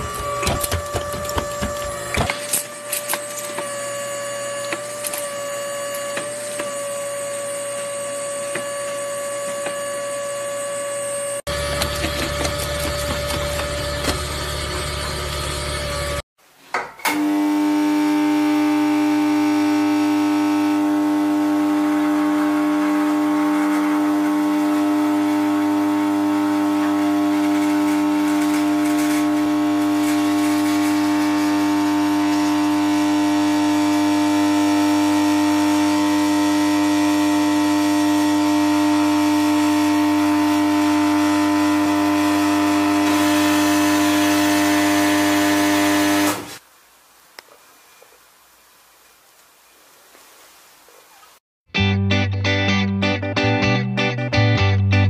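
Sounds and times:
faint hiss: 0:46.6 - 0:51.4.

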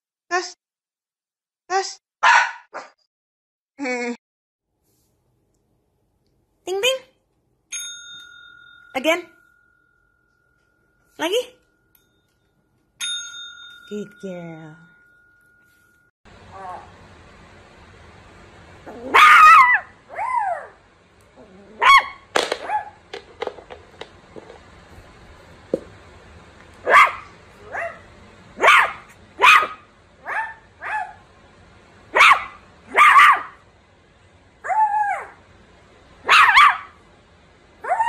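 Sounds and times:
puppy barking and yipping: 0:02.2 - 0:02.9, 0:19.0 - 0:20.8, 0:21.8 - 0:23.0, 0:26.8 - 0:31.2, 0:32.1 - 0:33.6, 0:34.6 - 0:35.4, 0:36.2 - 0:37.0.

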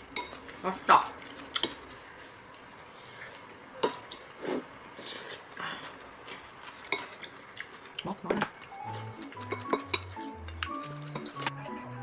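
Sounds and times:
eating noises: 0:00.4 - 0:11.5
utensils clinking against dishes: 0:08.3 - 0:11.6.

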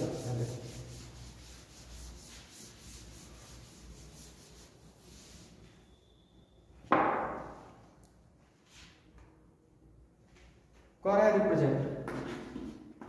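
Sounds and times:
duster rubbing on blackboard: 0:00.0 - 0:05.8.

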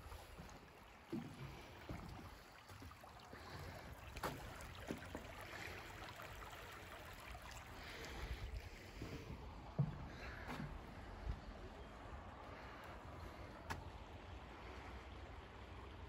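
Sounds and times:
stream rippling over rocks: 0:00.0 - 0:16.0
footsteps on wooden boards: 0:00.1 - 0:05.2, 0:08.6 - 0:13.9.

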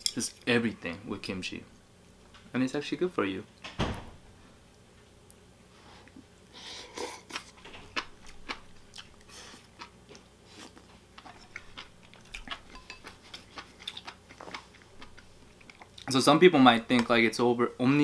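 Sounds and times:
wet chewing and mouth smacks: 0:07.3 - 0:16.1.

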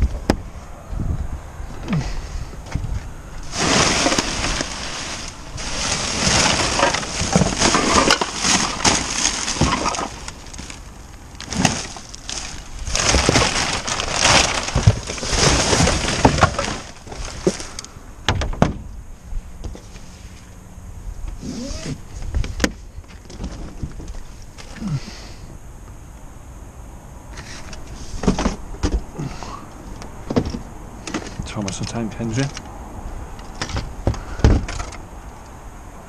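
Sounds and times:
plastic bags and cardboard rustling: 0:03.4 - 0:17.9, 0:23.1 - 0:25.0.

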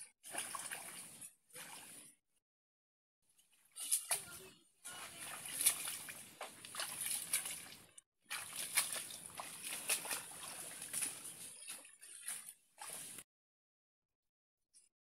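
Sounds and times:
footsteps through wet plants: 0:03.7 - 0:13.2.

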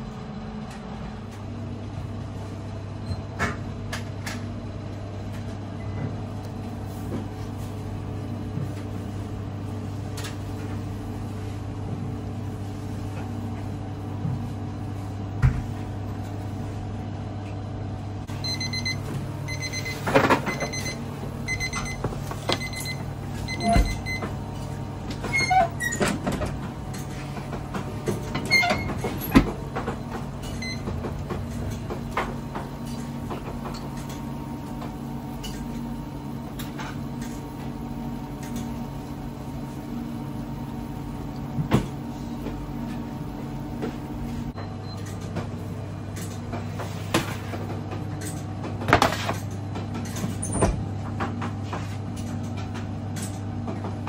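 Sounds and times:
low machine hum: 0:00.0 - 0:54.0
electronic alarm beeping: 0:18.4 - 0:24.3.

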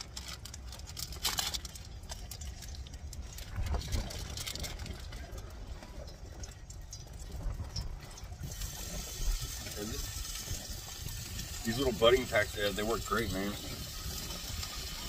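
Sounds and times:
plastic wrapper crinkling: 0:00.0 - 0:06.6
wind buffeting microphone: 0:03.2 - 0:15.0.

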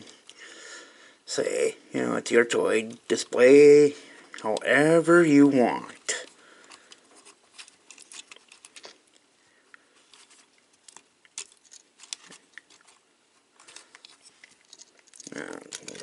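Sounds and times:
faint rustles: 0:06.1 - 0:16.0.

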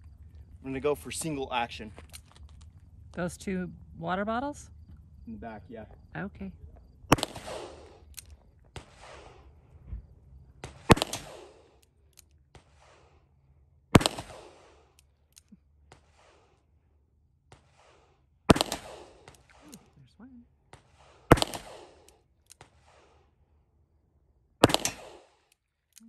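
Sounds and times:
revolver shots with echo: 0:07.1 - 0:08.1, 0:10.6 - 0:11.7, 0:13.9 - 0:14.8, 0:18.5 - 0:19.8, 0:21.2 - 0:22.1, 0:24.6 - 0:25.4.

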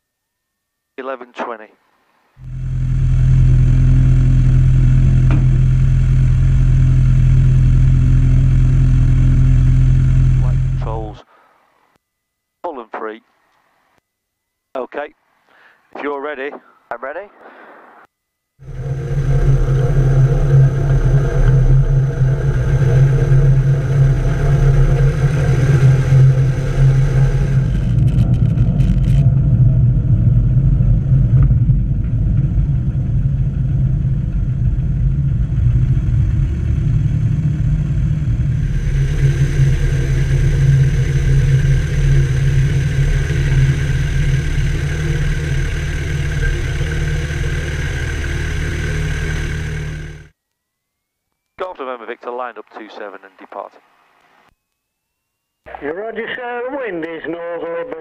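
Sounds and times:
propeller aircraft engine droning: 0:02.4 - 0:11.2, 0:18.6 - 0:50.3.

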